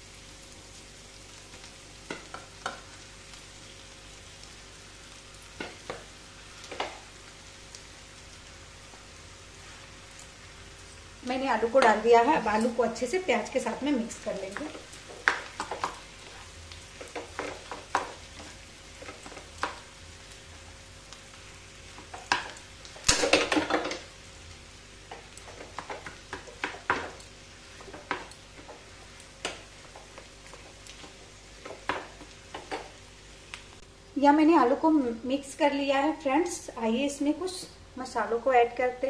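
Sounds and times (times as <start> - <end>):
light sizzle: 0.0 - 39.0.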